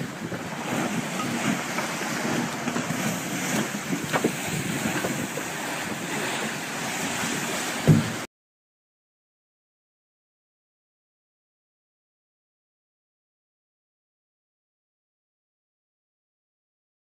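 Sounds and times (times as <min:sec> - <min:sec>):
sea water sloshing and splashing: 0:00.0 - 0:08.3
wind noise on microphone: 0:00.0 - 0:08.3.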